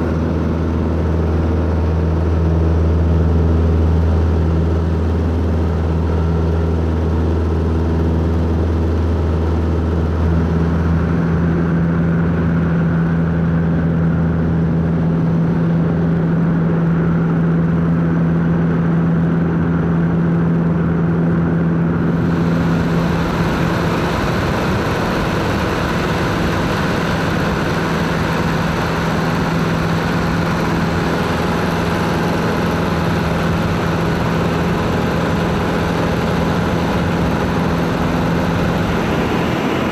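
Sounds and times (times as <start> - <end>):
light aircraft engine and propeller: 0.0 - 39.9
rush of air: 37.4 - 39.9.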